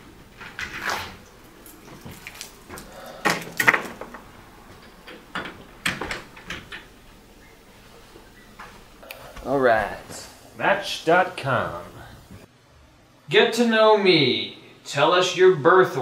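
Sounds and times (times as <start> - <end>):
door clicks and knocks: 4.8 - 6.9
footsteps: 7.8 - 10.7, 11.6 - 12.5.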